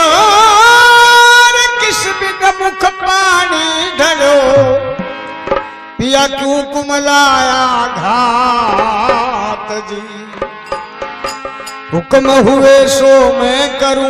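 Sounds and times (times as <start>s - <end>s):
harmonium: 0.0s - 14.0s
man singing devotional song: 0.0s - 14.0s
hand drum strokes: 10.4s - 12.6s.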